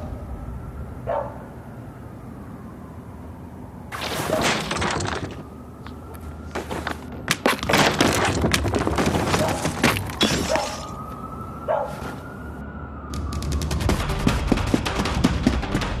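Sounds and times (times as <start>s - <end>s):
wood breaking and clattering: 3.9s - 5.6s, 6.6s - 11.0s.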